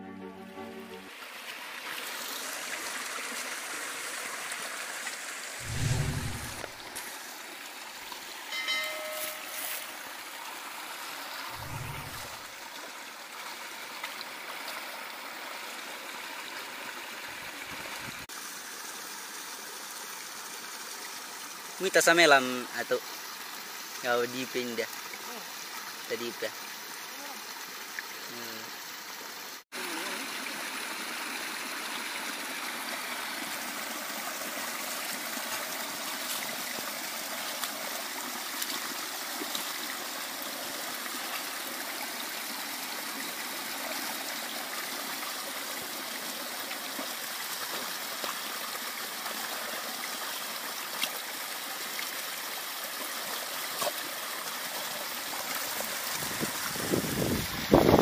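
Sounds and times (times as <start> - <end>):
running water gurgling: 0.4 - 58.0.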